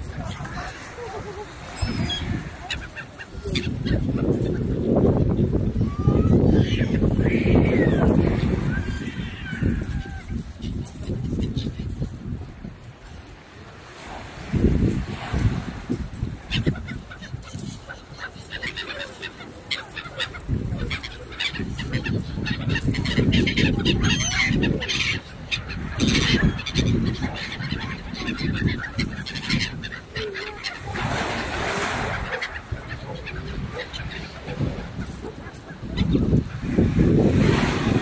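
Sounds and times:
swans calling: 0:00.0 - 0:10.4, 0:15.3 - 0:36.8
gulls calling: 0:00.0 - 0:12.2, 0:13.8 - 0:38.0.

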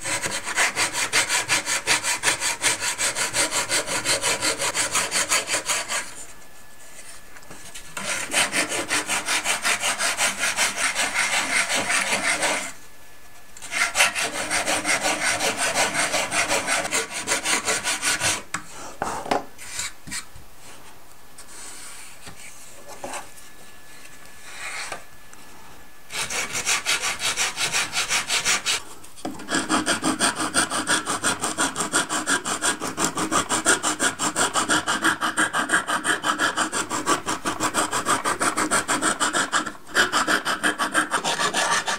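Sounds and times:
sanding block rubbing wood: 0:00.0 - 0:06.2, 0:08.0 - 0:12.8, 0:13.6 - 0:18.4, 0:26.1 - 0:28.8, 0:29.5 - 0:41.9.

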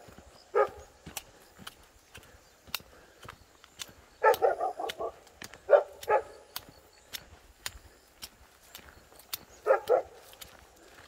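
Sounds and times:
faint footsteps: 0:00.0 - 0:11.0
dog barking: 0:00.5 - 0:00.9, 0:04.2 - 0:06.4, 0:09.6 - 0:10.2.

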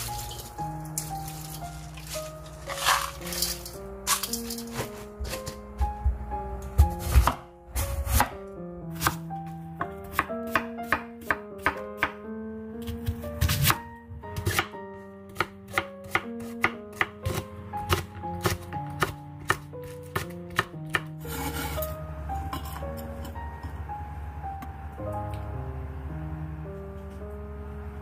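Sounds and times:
quiet background music: 0:00.0 - 0:28.0
knife chopping on wooden board: 0:06.8 - 0:07.4.

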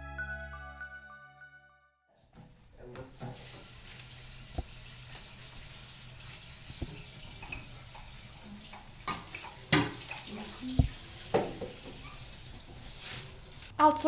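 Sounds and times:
dishes knocking and clinking: 0:09.0 - 0:10.1, 0:10.8 - 0:12.0.

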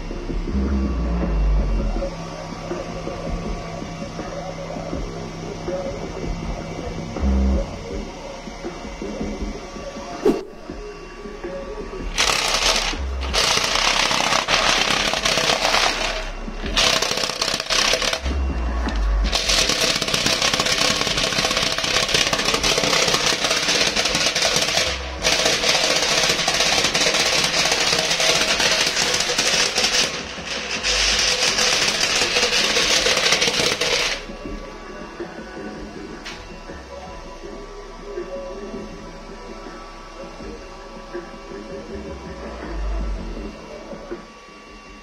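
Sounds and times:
deep subwoofer bass: 0:00.0 - 0:12.2, 0:12.8 - 0:20.0, 0:34.2 - 0:44.1
paper fluttering and rattling: 0:12.2 - 0:18.3, 0:19.3 - 0:34.3.

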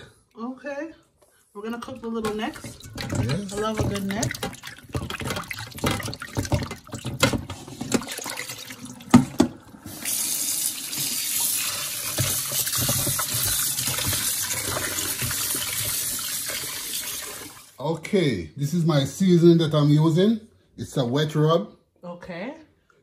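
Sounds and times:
kitchen tap running: 0:01.7 - 0:17.8
hands sloshing water in bowl: 0:01.8 - 0:10.0, 0:11.6 - 0:17.4.

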